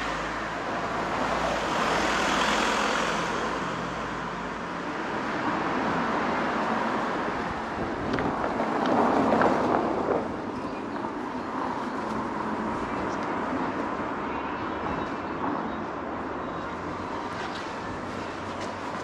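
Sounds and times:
wind on microphone: 0:07.2 - 0:10.6.

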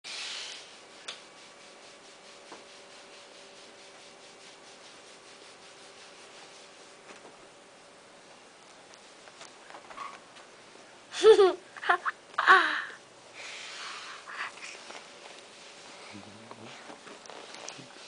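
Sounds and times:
hands brushing on fabric: 0:01.3 - 0:07.4, 0:13.5 - 0:16.1, 0:16.7 - 0:18.0.

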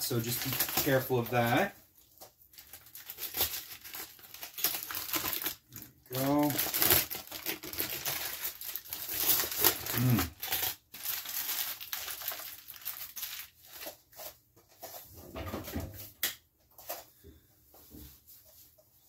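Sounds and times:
aluminum foil crinkling: 0:00.0 - 0:14.4.

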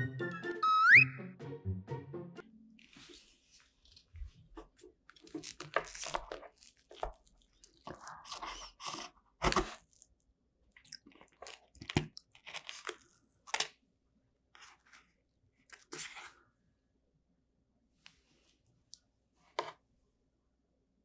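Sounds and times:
pastry shell crunching: 0:05.0 - 0:10.2, 0:10.8 - 0:13.8.

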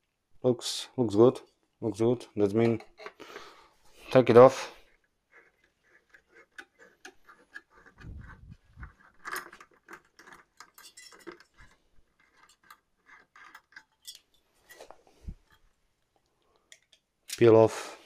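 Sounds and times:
small metal clicks and ticks: 0:05.6 - 0:14.8.

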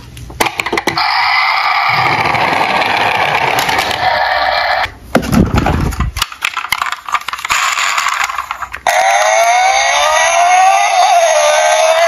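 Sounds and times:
toy car rolling and crashing: 0:00.4 - 0:12.0
plastic toy vehicles rattling: 0:01.9 - 0:04.2, 0:05.2 - 0:12.0.

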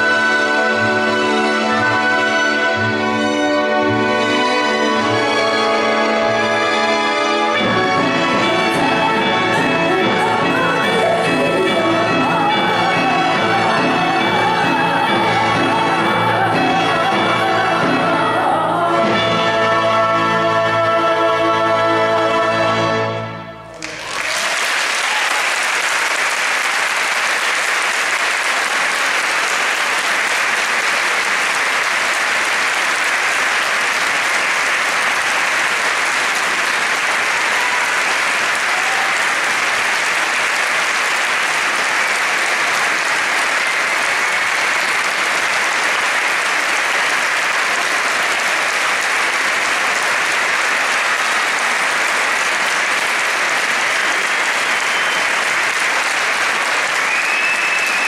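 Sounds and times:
audience applauding: 0:23.7 - 0:58.0.

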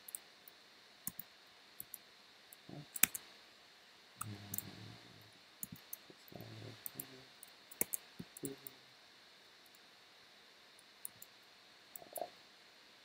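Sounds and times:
mouse clicks: 0:01.1 - 0:03.2, 0:04.2 - 0:04.7, 0:07.7 - 0:08.5.

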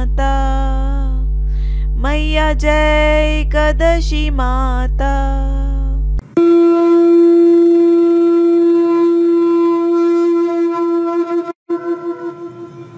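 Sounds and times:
conch shell blast: 0:06.3 - 0:12.9.

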